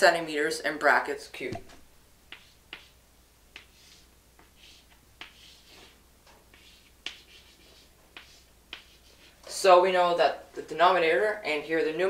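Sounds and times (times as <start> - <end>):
chalk tapping on chalkboard: 2.3 - 9.3
chalk scratching on chalkboard: 2.3 - 9.4.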